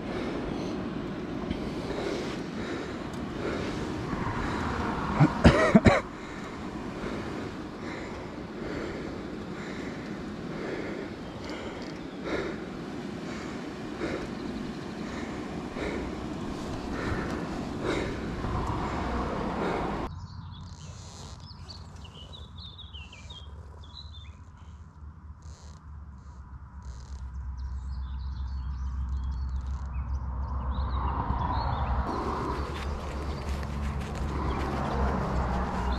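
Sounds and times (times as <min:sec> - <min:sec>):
small birds chirping: 0:00.0 - 0:05.2, 0:06.1 - 0:25.8, 0:26.8 - 0:35.9
even rushing noise: 0:00.0 - 0:20.1
steady low hum: 0:00.0 - 0:20.1.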